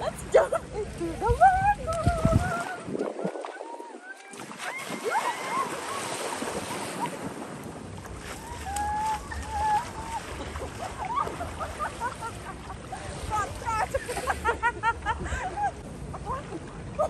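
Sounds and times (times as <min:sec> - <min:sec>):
people splashing in water: 0:00.0 - 0:15.3
wind buffeting microphone: 0:00.0 - 0:17.0
women shrieking and calling: 0:04.2 - 0:06.2, 0:08.4 - 0:10.3, 0:10.9 - 0:11.9.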